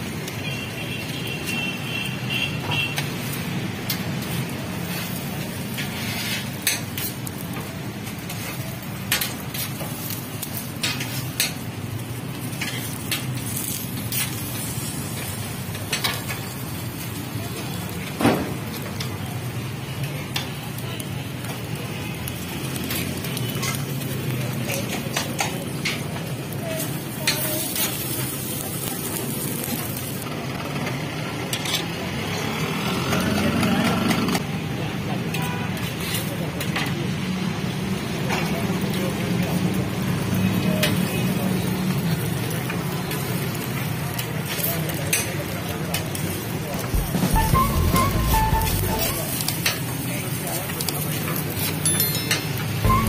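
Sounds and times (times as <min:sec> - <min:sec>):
food sizzling on griddle: 0:00.0 - 0:33.6, 0:34.4 - 0:53.0
knife scraping on iron griddle: 0:04.9 - 0:07.1
spatula clicking on griddle: 0:08.3 - 0:11.7.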